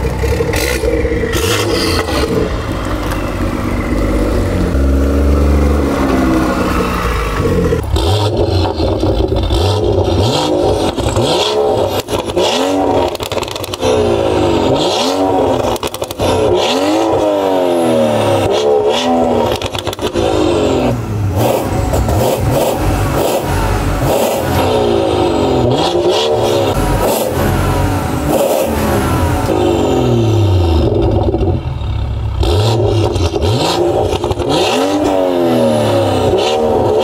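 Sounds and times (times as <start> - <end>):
car engine running and revving: 0.0 - 37.0.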